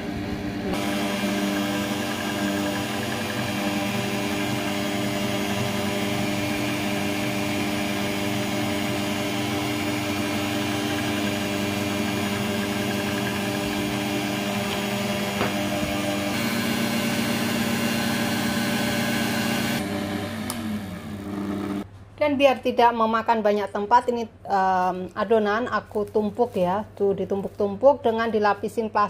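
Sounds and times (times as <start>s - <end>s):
pasta machine motor humming: 0.0s - 21.9s.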